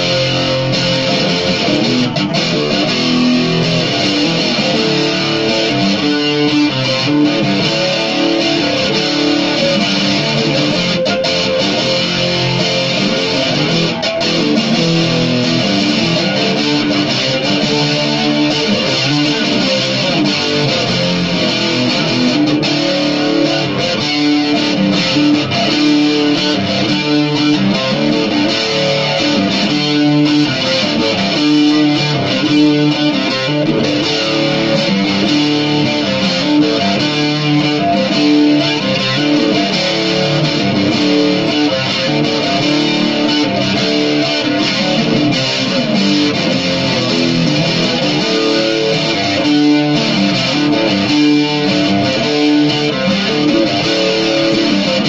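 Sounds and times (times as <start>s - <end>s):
electric guitar rock riff: 0.0s - 55.0s.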